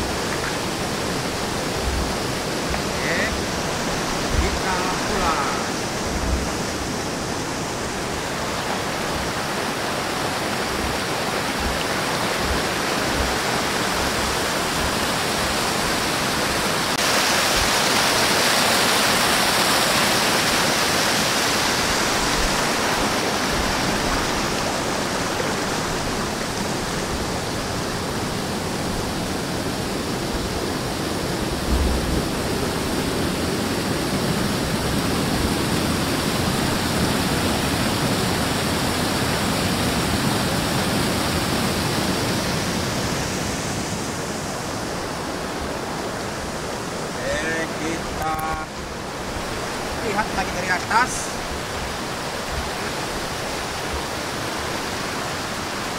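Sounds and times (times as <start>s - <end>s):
waterfall rushing over rocks: 0.0s - 55.9s.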